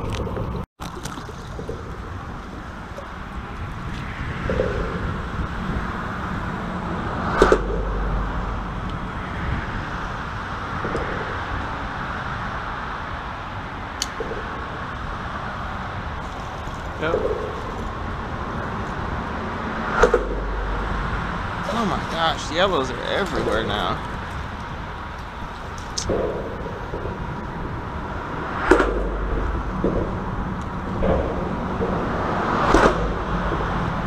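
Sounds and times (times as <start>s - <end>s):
road traffic rumble: 0.0s - 34.0s
sharp knock: 19.9s - 21.1s, 28.6s - 30.2s.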